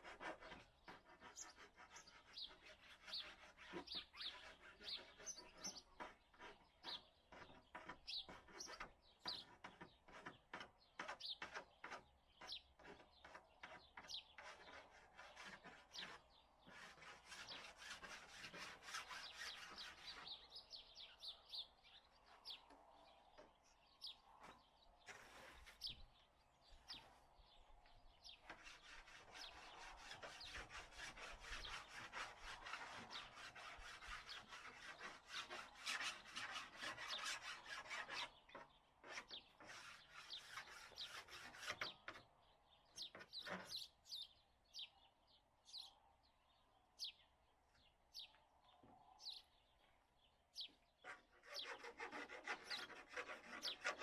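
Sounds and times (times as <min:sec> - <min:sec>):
tool rasping on workpiece: 0:00.0 - 0:20.4, 0:28.4 - 0:42.2, 0:43.0 - 0:43.8, 0:51.0 - 0:54.0
birds chirping: 0:00.1 - 0:54.0.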